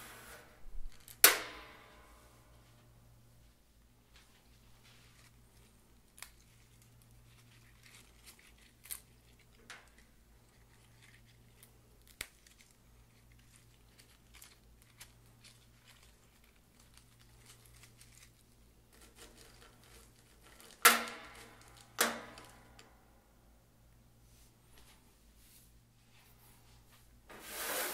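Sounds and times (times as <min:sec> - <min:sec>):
mint sprigs rustling and snapping: 0:04.8 - 0:20.8.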